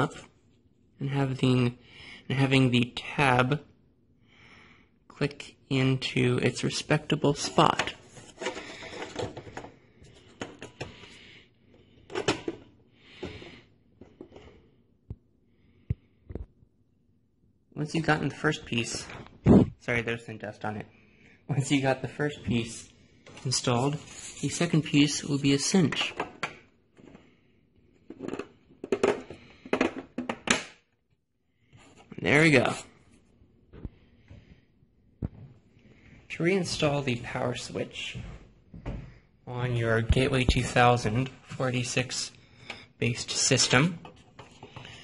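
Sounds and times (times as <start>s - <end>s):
plastic parts clicking and knocking: 7.4s - 11.1s, 11.9s - 14.5s, 25.9s - 27.2s, 27.9s - 30.9s.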